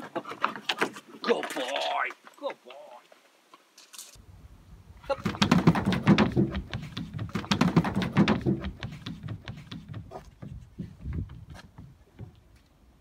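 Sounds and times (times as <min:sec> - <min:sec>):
dog paws scrabbling on car: 0:05.3 - 0:12.4.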